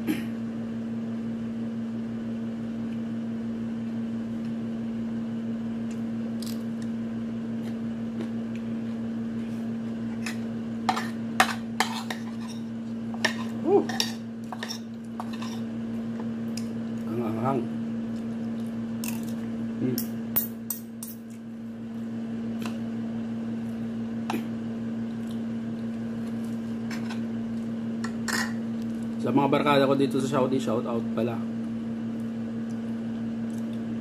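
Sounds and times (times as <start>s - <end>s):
steady low hum: 0.0s - 34.0s.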